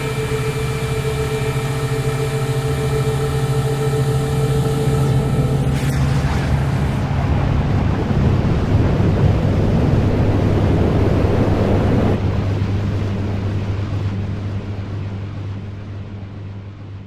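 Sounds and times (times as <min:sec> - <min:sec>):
steady low hum: 0:00.0 - 0:17.0
dense rushing noise wash: 0:04.2 - 0:15.0.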